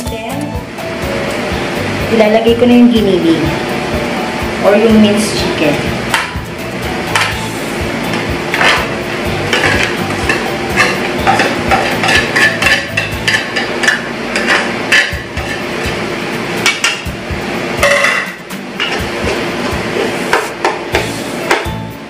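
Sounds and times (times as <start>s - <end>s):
metal spatula scraping a pot: 9.5s - 15.6s.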